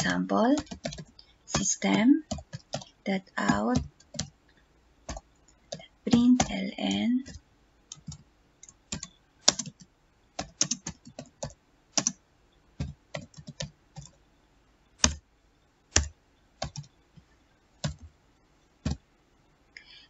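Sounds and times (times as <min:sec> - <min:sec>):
typing on computer keyboard: 0:00.0 - 0:04.3, 0:05.0 - 0:12.2, 0:12.8 - 0:14.2, 0:15.0 - 0:15.2, 0:15.9 - 0:16.9, 0:17.8 - 0:18.1.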